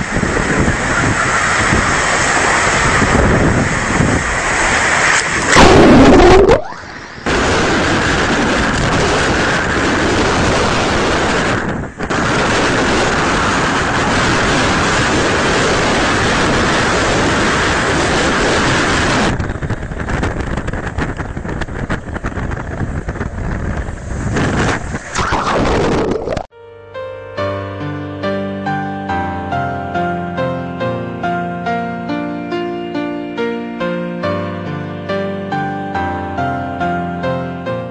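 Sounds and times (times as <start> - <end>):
floodwater rushing: 0.0 - 20.2, 23.4 - 26.5
waves breaking: 0.0 - 26.5
wind blasting microphone: 0.0 - 26.5.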